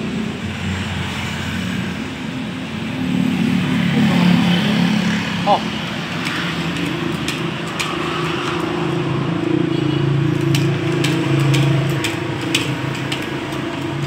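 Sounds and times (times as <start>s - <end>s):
sharp metallic clicks: 5.7s - 14.0s.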